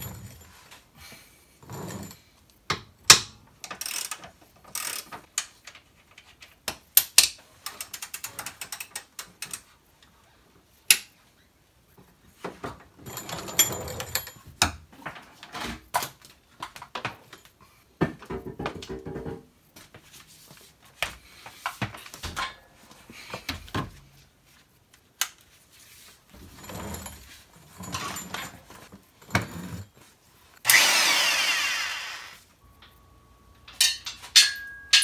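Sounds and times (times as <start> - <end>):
metallic tool knocks and clanks: 33.7 - 35.0.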